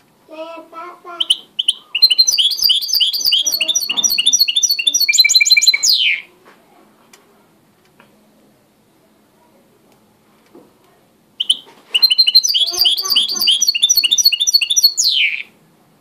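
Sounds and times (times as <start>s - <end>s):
bird singing high chirps: 1.2s - 6.3s, 11.4s - 15.5s.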